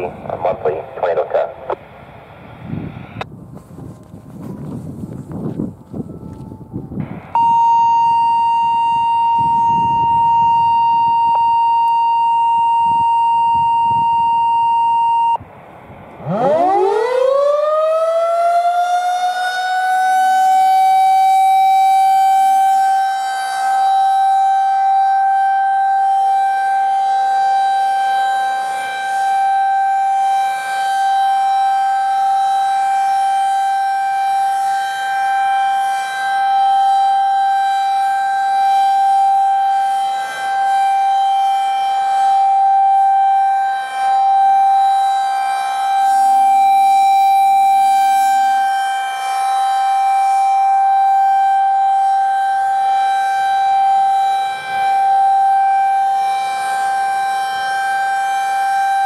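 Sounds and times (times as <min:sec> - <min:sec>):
rotating siren wailing: 0:00.0 - 0:03.2, 0:04.1 - 0:59.0
steady electronic tone: 0:07.0 - 0:16.8.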